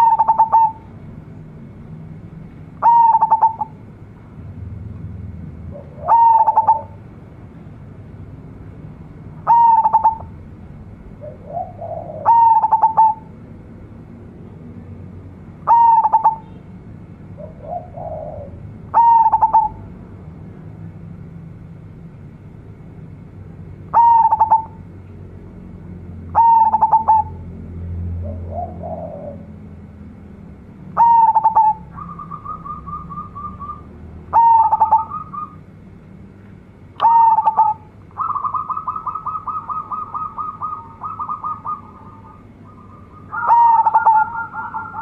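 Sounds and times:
dove cooing song: 0:00.0 - 0:01.0, 0:02.8 - 0:03.8, 0:05.6 - 0:07.1, 0:09.4 - 0:10.4, 0:11.2 - 0:13.4, 0:15.6 - 0:16.5, 0:17.3 - 0:19.9, 0:23.9 - 0:24.9, 0:26.3 - 0:29.7, 0:30.9 - 0:35.6, 0:37.0 - 0:45.0.

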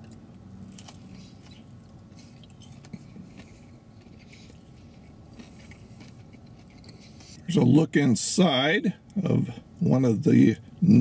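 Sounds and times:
faint chewing with crunches: 0:00.0 - 0:07.8.

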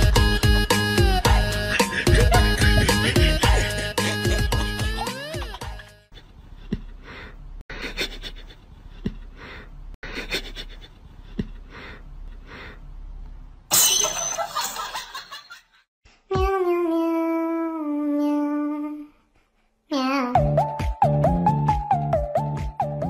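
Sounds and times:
person humming a tune: 0:00.0 - 0:06.0, 0:16.3 - 0:19.2
person laughing: 0:01.2 - 0:07.0, 0:07.7 - 0:09.3, 0:10.0 - 0:11.6.

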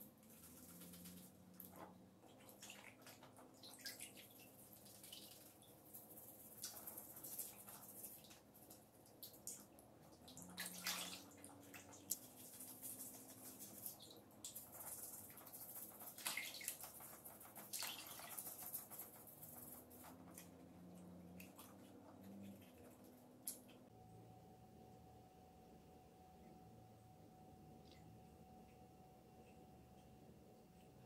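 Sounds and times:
water splashing in a basin: 0:00.3 - 0:05.8, 0:09.1 - 0:19.0.

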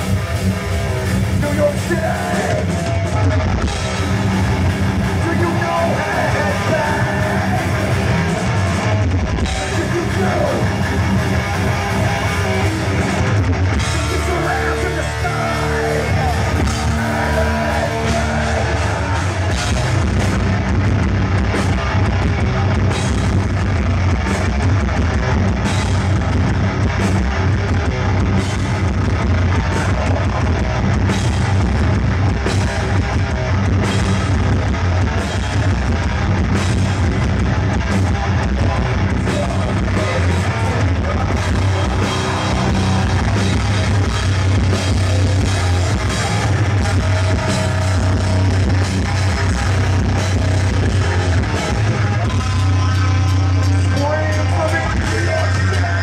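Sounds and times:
heavy metal band playing live: 0:00.0 - 0:56.0.

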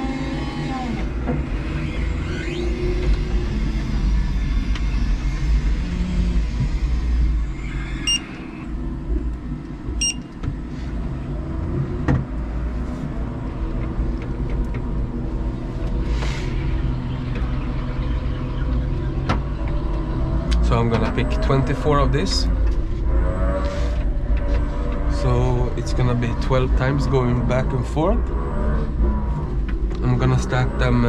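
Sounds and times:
forklift motor rumble: 0:00.0 - 0:31.0
short electronic beeps: 0:08.0 - 0:08.4, 0:10.0 - 0:10.3.

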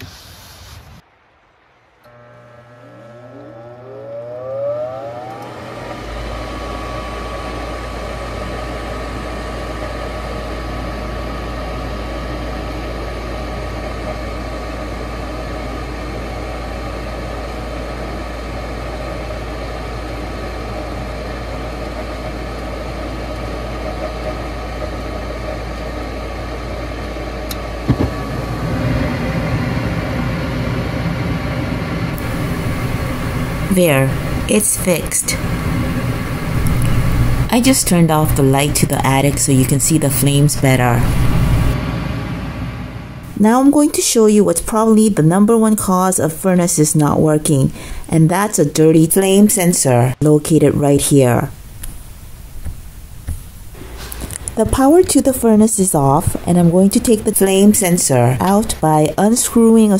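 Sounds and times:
furnace motor whine and hum: 0:02.0 - 0:59.9.

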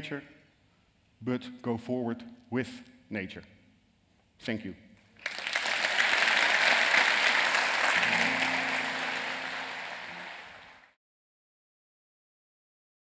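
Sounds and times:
audience applause: 0:05.2 - 0:11.0.

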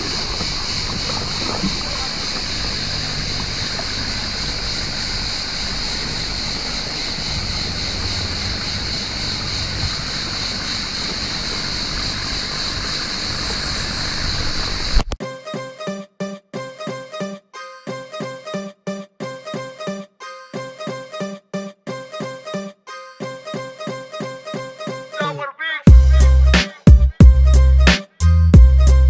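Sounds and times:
water washing: 0:00.0 - 0:15.1
boat engine hum: 0:00.0 - 0:15.2, 0:25.9 - 0:29.0.

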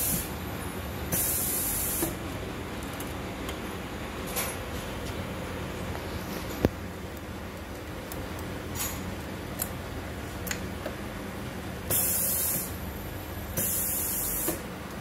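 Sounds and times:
compressed air hiss: 0:00.0 - 0:00.4, 0:01.1 - 0:02.2, 0:11.9 - 0:12.8, 0:13.6 - 0:14.6
steady machine hum: 0:00.0 - 0:15.0.

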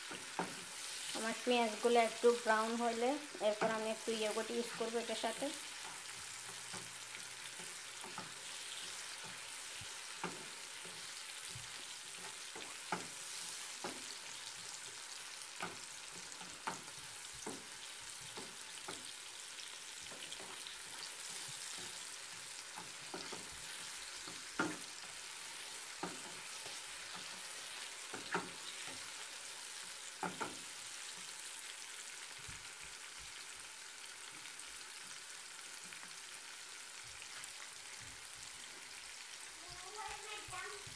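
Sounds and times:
onions sizzling in oil: 0:00.0 - 0:40.9
spatula knocking against pan: 0:22.7 - 0:25.0.

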